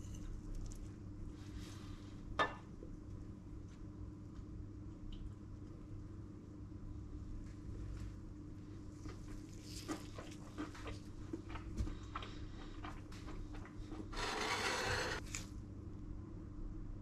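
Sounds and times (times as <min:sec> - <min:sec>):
steady low hum: 0:00.0 - 0:17.0
cutlery scraping on ceramic plate: 0:14.2 - 0:15.2.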